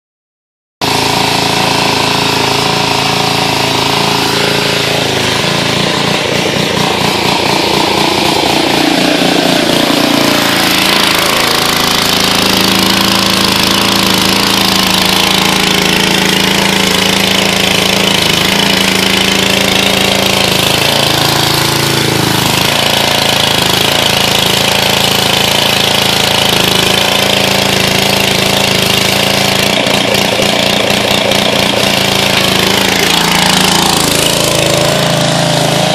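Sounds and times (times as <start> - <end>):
small engine running: 0.8 - 35.9
high-pressure water spray hissing: 28.2 - 35.9.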